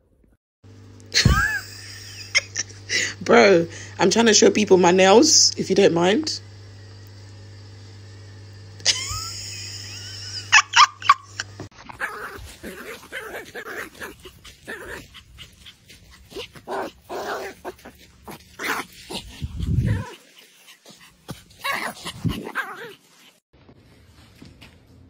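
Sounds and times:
low rumble: 19.1 - 20.0.

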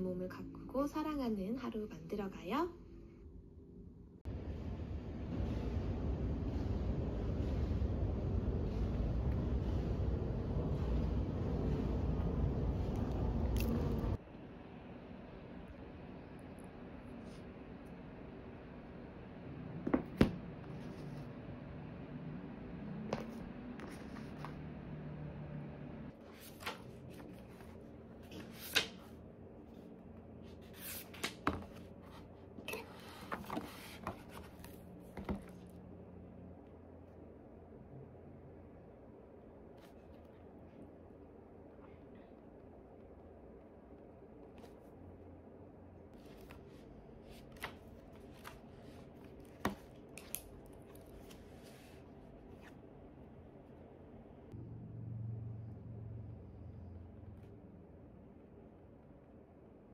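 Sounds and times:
low steady hum: 0.0 - 59.9
book pages flipping: 12.9 - 14.1, 23.1 - 24.7, 26.2 - 35.8, 44.4 - 45.0, 46.1 - 52.9.

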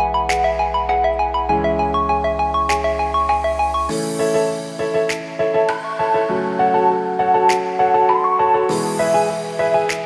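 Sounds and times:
instrumental background music: 0.0 - 10.0.

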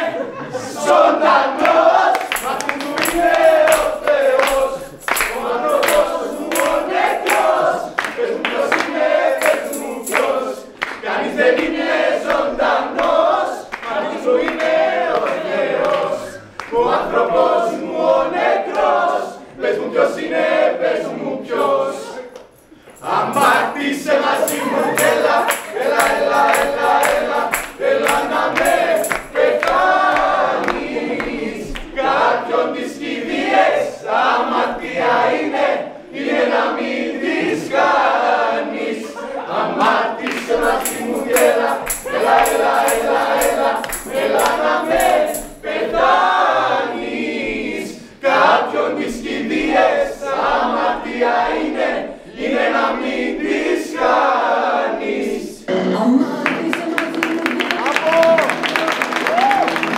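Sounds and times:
men and women singing in chorus: 0.0 - 56.8
steady rhythmic beat: 2.0 - 13.2, 22.9 - 32.0, 39.9 - 47.7.

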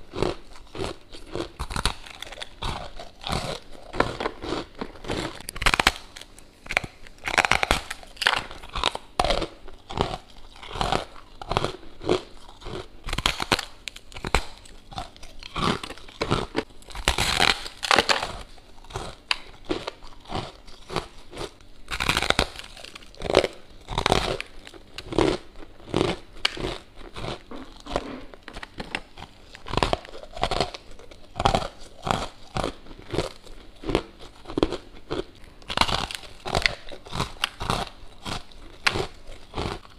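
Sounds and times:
chewing crunchy frost: 0.0 - 39.9.

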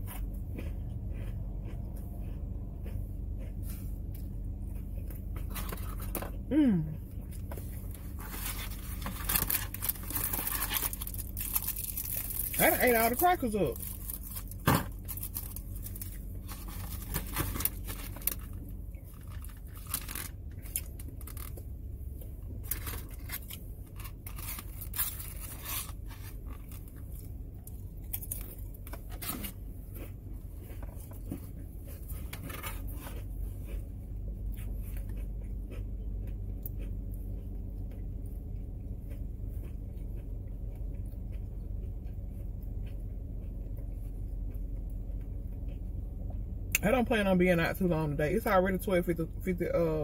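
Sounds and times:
steady low hum: 0.0 - 50.0
plastic wrapper crinkling and tearing: 8.2 - 13.2, 13.8 - 21.6, 22.6 - 27.0.

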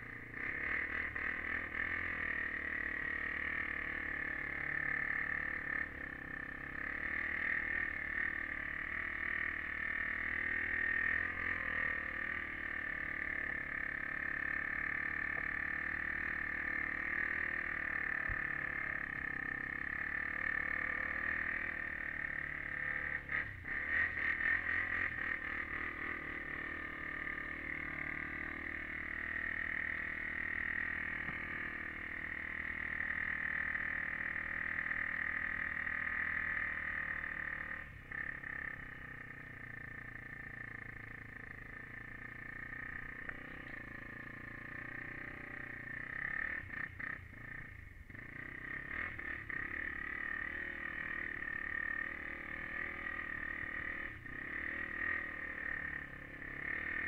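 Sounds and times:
muffled quad engine running: 0.0 - 57.0.

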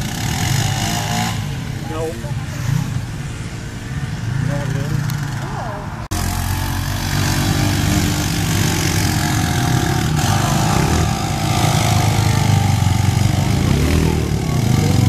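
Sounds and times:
tires digging into loose sand: 4.3 - 15.0.

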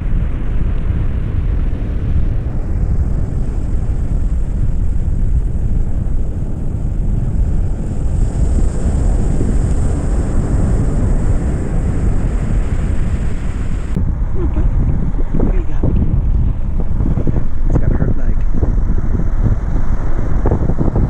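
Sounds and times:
wind buffeting microphone: 0.0 - 21.0
ocean surf breaking: 0.9 - 21.0.

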